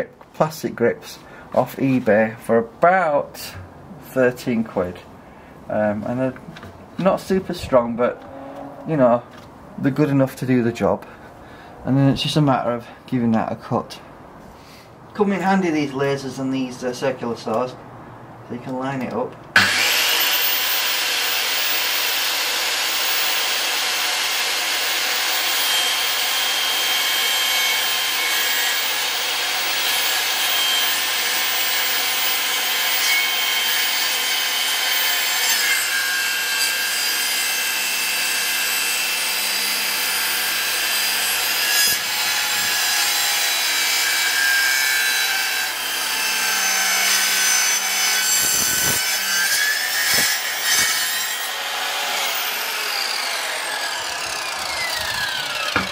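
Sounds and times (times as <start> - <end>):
circular saw cutting wood: 19.6 - 55.9.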